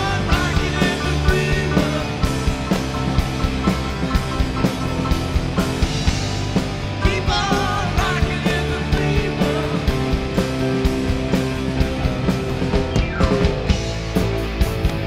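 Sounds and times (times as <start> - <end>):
man singing: 0.0 - 2.5, 7.0 - 10.3
drum kit beat: 0.0 - 15.0
electric guitars: 0.0 - 15.0.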